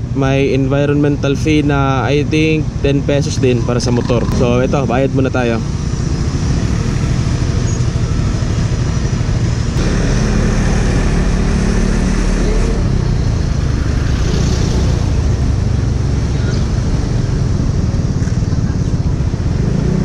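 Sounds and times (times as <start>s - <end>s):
scooter engine idling and pulling away: 5.9s - 20.0s.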